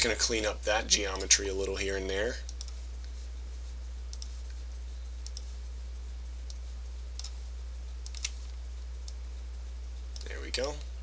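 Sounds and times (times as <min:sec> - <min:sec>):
low electrical hum: 0:00.0 - 0:11.0
computer mouse clicks: 0:02.5 - 0:02.8, 0:04.1 - 0:04.4, 0:05.2 - 0:05.5, 0:08.0 - 0:08.4.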